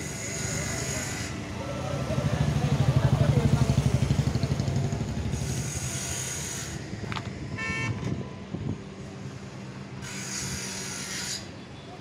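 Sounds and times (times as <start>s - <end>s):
tractor diesel engine idling: 0.6s - 5.8s
vehicle horn toot: 7.5s - 8.2s.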